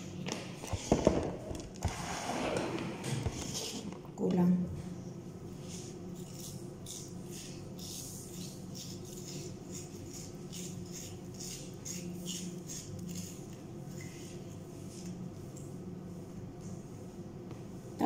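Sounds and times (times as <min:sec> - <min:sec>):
steady low hum: 0:00.0 - 0:18.0
knife cutting potatoes: 0:06.2 - 0:13.5.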